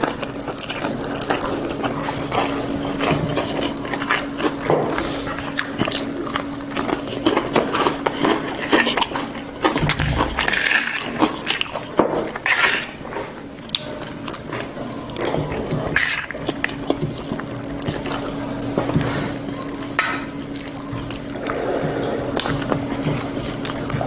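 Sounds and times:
chewing and lip smacks: 0.0s - 24.0s
steady low hum: 0.0s - 24.0s.

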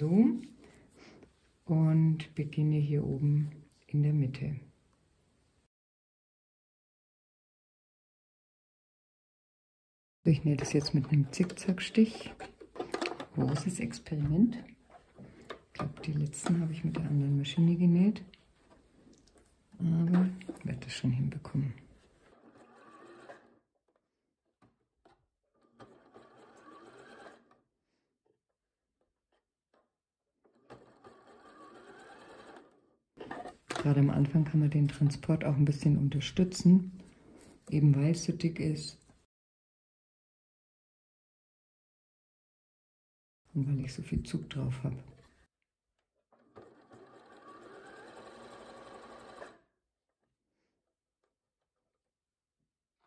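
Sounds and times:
sewing machine stitching: 10.5s - 17.4s, 20.0s - 23.7s, 24.6s - 27.6s, 30.4s - 34.1s, 46.3s - 49.8s
sewing machine running: 22.2s - 23.6s, 25.6s - 27.6s, 30.5s - 33.4s, 46.3s - 49.7s.

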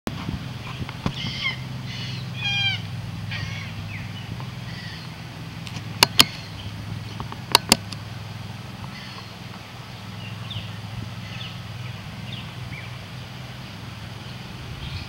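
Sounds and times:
steady low rumble: 0.1s - 15.0s
sharp double clicks: 5.6s - 6.5s, 7.2s - 8.0s.

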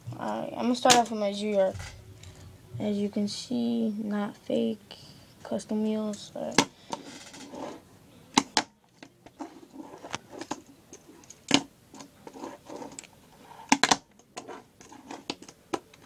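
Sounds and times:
faint scraping: 6.8s - 7.9s, 9.3s - 11.4s, 12.0s - 13.7s.

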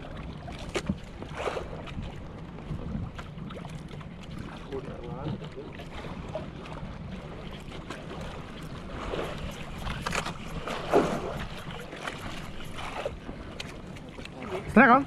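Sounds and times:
water washing around boat: 0.0s - 15.0s.

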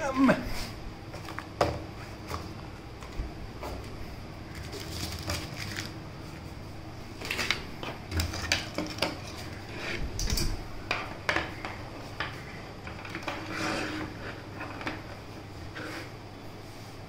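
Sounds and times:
plastic bag crinkling: 4.5s - 6.0s.

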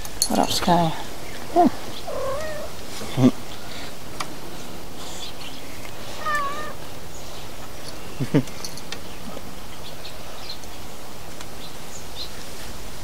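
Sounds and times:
cat meowing: 2.0s - 2.8s, 6.2s - 6.8s.

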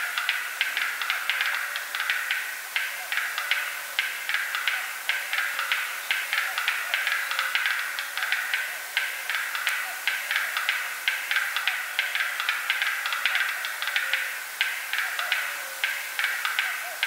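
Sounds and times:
bird dry clicking calls: 0.0s - 17.0s
steady hiss: 0.0s - 17.0s.

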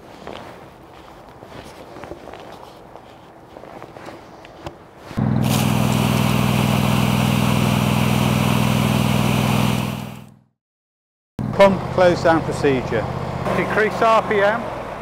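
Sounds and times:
fire pump engine running: 5.2s - 10.5s, 11.4s - 15.0s
water jet hissing: 5.4s - 10.2s.

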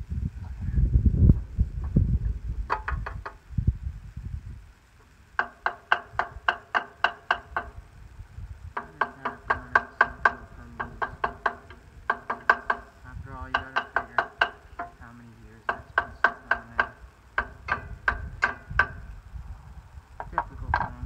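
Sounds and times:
low rumble: 0.0s - 5.3s, 17.0s - 21.0s
hammer tapping on metal: 2.7s - 3.4s, 5.4s - 7.8s, 8.8s - 19.0s, 20.2s - 21.0s.

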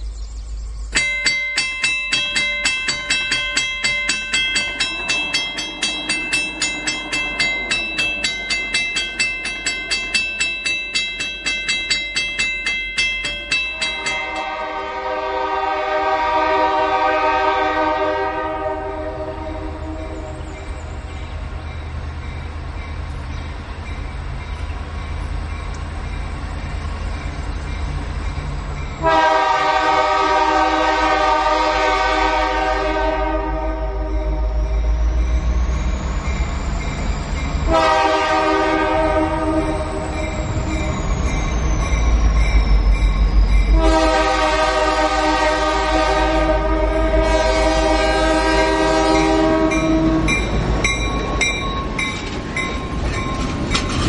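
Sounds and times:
railroad crossing bell ringing: 0.8s - 54.0s
locomotive horn blast: 14.0s - 20.5s, 29.0s - 34.7s, 37.7s - 40.0s, 43.7s - 50.5s.

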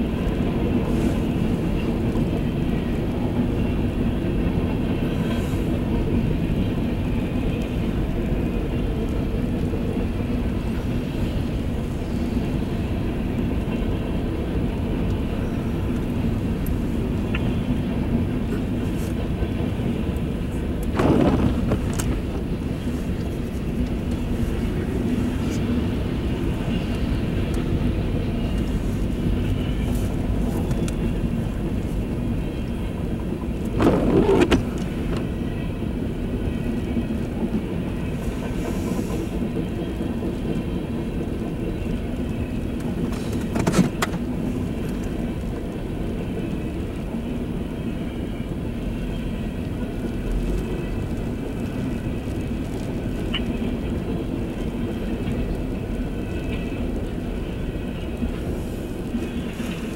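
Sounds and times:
train clatter: 0.0s - 59.9s
train wheels rumbling on rail: 0.0s - 59.9s.

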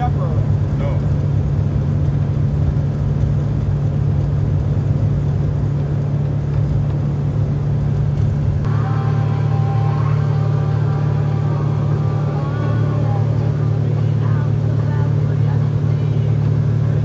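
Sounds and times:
outboard motor droning: 0.0s - 17.0s
high motor whine: 6.9s - 17.0s.

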